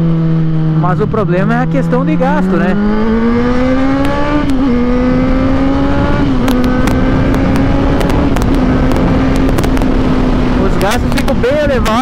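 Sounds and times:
motorcycle engine running: 0:00.0 - 0:12.0
wind rush on microphone: 0:02.4 - 0:12.0.

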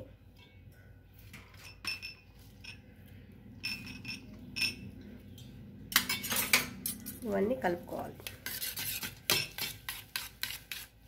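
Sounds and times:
spoon clinking on steel cups: 0:01.5 - 0:02.9, 0:03.6 - 0:07.2.

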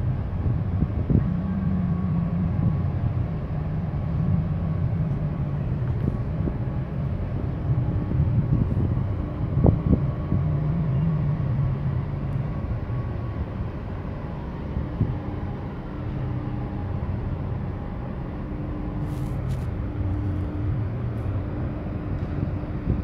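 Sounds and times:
faint hum: 0:00.0 - 0:23.0
ship engine rumble: 0:00.0 - 0:23.0.

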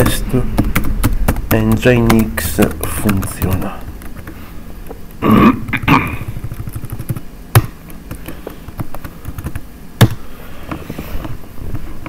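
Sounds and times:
keyboard typing: 0:00.0 - 0:05.2, 0:06.2 - 0:10.2.

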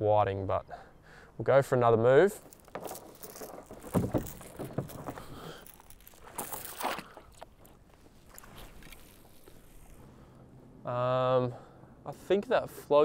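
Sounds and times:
anchor chain clinking and rattling: 0:02.2 - 0:10.0.

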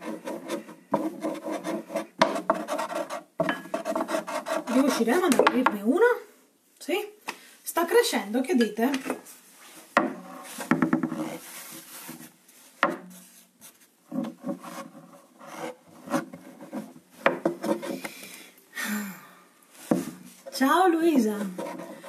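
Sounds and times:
rolling pin scraping on wood: 0:00.0 - 0:05.4, 0:10.0 - 0:18.1, 0:21.2 - 0:22.0
rolling pin knocking board: 0:10.0 - 0:11.2.

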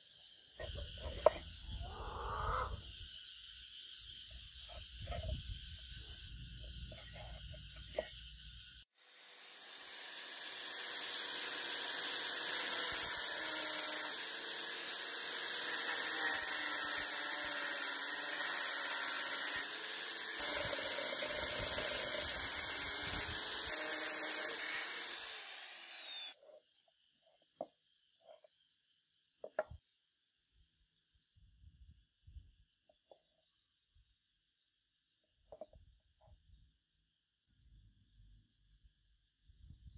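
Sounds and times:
angle grinder cutting steel: 0:09.0 - 0:26.4
grinder winding down: 0:09.0 - 0:26.4.

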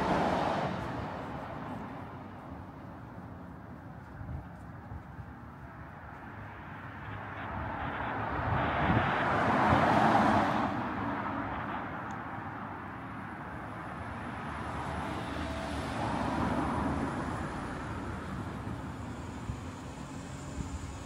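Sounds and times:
car passing by: 0:00.0 - 0:02.3, 0:06.2 - 0:21.0
quieter vehicle passing: 0:05.9 - 0:21.0.

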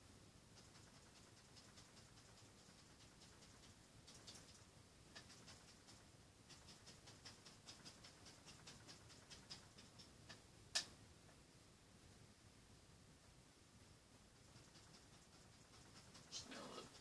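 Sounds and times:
paintbrush dabbing on canvas: 0:00.5 - 0:10.9, 0:14.3 - 0:17.0.

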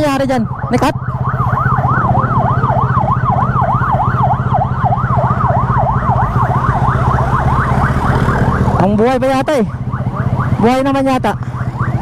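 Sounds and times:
emergency siren yelping: 0:00.0 - 0:12.0.

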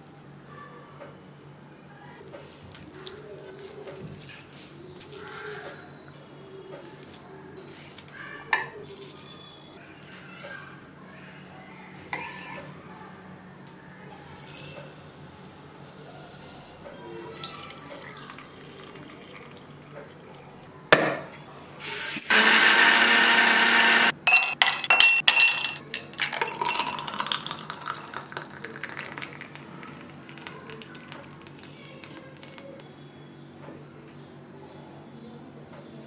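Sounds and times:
juice pouring into a glass: 0:17.3 - 0:20.7, 0:26.0 - 0:32.8
blender running: 0:21.8 - 0:24.2
ice cubes clinking in a glass: 0:24.3 - 0:32.6.

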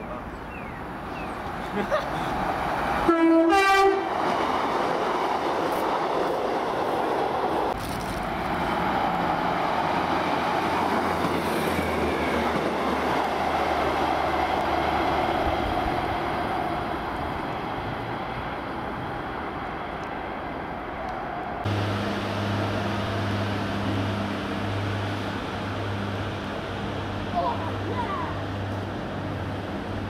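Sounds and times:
train wheels on rails: 0:04.1 - 0:27.1.

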